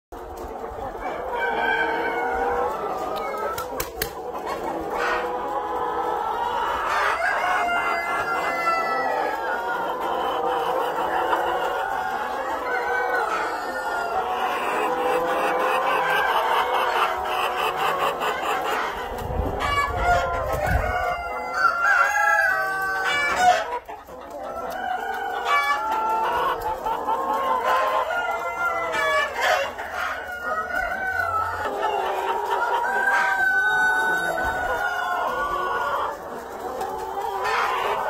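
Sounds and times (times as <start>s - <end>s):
hens clucking: 0.1s - 38.0s
roosters crowing: 1.0s - 3.8s, 6.8s - 9.6s, 19.4s - 23.8s, 27.5s - 36.2s.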